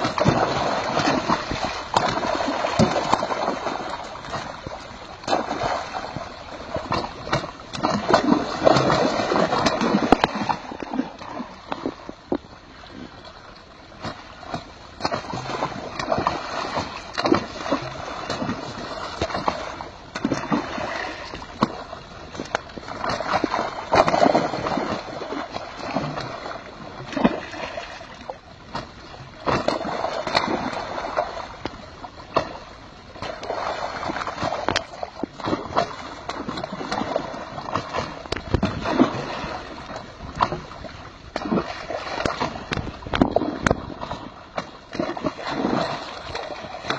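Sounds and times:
water gushing into pond: 0:00.0 - 0:04.6, 0:05.2 - 0:11.6, 0:15.0 - 0:21.8, 0:22.9 - 0:28.0, 0:38.6 - 0:40.6, 0:44.9 - 0:46.9
fish splashing: 0:00.0 - 0:12.0, 0:14.0 - 0:22.0, 0:22.8 - 0:28.1, 0:41.3 - 0:46.9.

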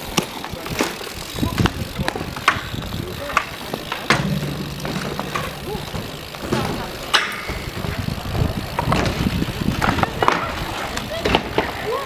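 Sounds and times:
bikes rolling on concrete: 0:00.0 - 0:12.0
sharp clack: 0:04.1 - 0:08.4.

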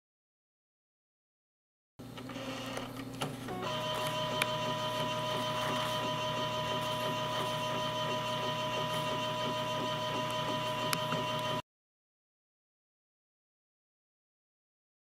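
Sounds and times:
inkjet printer whine: 0:02.1 - 0:11.6
printer click: 0:02.6 - 0:11.6.

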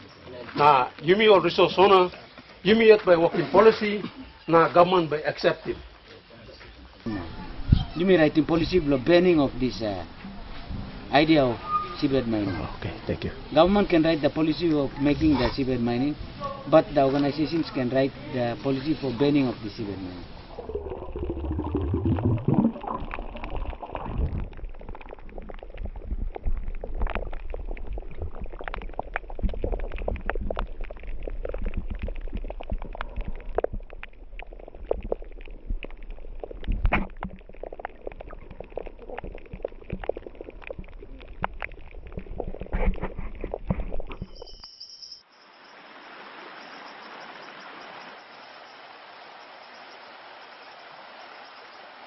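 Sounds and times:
stream tumbling over rocks: 0:16.9 - 0:44.6
low rumble of moving water: 0:18.0 - 0:44.6
crackling clicks: 0:22.5 - 0:44.6.

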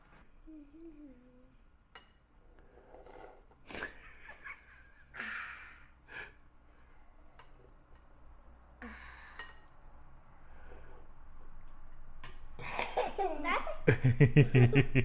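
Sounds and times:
toddler slurping soup: 0:02.6 - 0:03.7.

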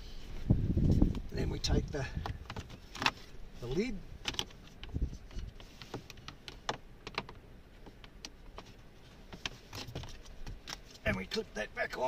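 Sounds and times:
plastic clicks and knocks: 0:06.0 - 0:08.7.

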